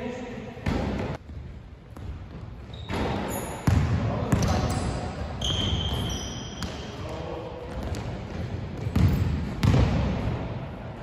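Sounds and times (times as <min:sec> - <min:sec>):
shoe squeak on gym floor: 0:02.6 - 0:03.8, 0:04.4 - 0:06.9
basketball thumps: 0:08.8 - 0:10.1.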